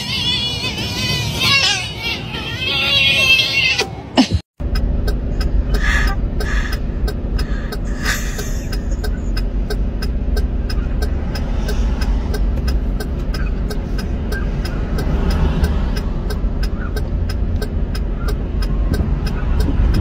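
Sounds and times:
car engine idling: 0:04.6 - 0:20.0
regular ticking: 0:04.6 - 0:20.0.

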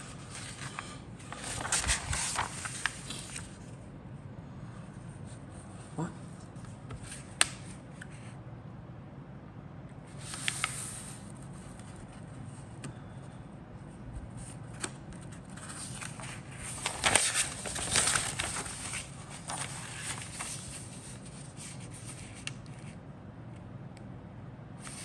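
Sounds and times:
paper rustling and crinkling: 0:00.0 - 0:03.7, 0:10.2 - 0:12.3, 0:14.4 - 0:23.0.

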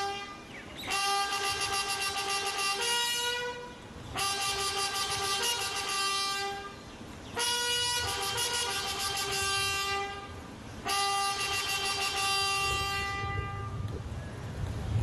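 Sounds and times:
long steady horn tones: 0:00.0 - 0:14.1.

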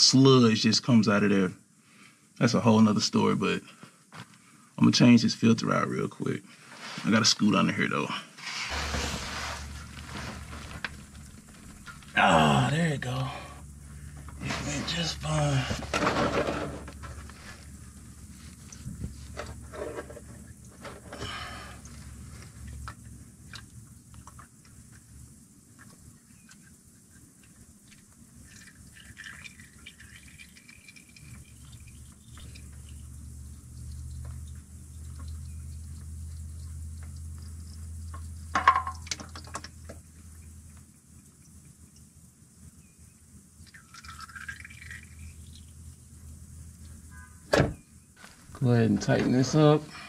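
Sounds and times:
oil dripping into a pan: 0:16.8 - 0:47.2.

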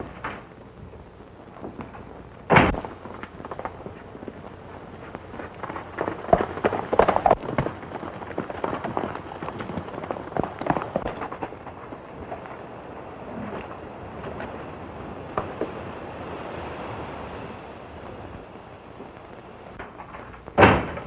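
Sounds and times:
galloping horse hoofbeats: 0:01.7 - 0:16.0.

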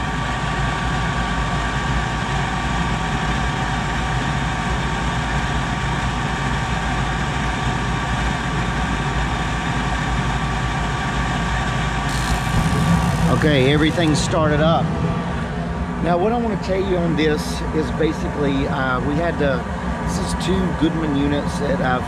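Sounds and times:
steady tones: 0:12.1 - 0:17.2
furnace motor hum: 0:12.1 - 0:17.3.

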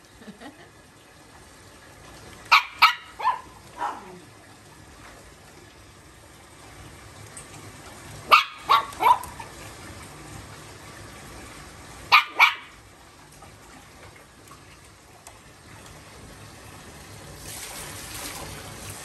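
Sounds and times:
puppy barking in high yaps: 0:02.5 - 0:04.2, 0:08.3 - 0:09.5, 0:12.1 - 0:12.8.

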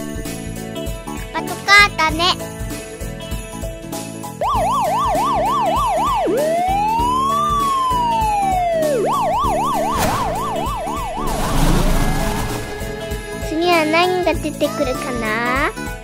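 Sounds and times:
background music with steady beat: 0:00.0 - 0:16.0
cartoon police siren warbling: 0:04.4 - 0:12.9.

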